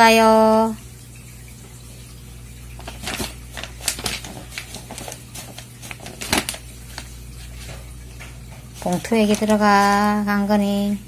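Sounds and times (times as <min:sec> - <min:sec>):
paper bag rustling and crinkling: 0:02.8 - 0:08.0, 0:08.6 - 0:09.9.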